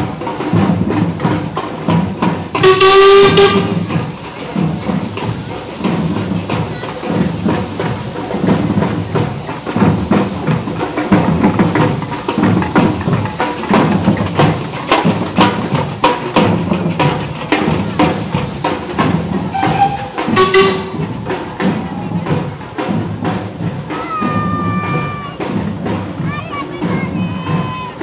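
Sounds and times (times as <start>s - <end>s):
music with percussive beat: 0.0s - 28.0s
high pitched note: 19.4s - 22.4s.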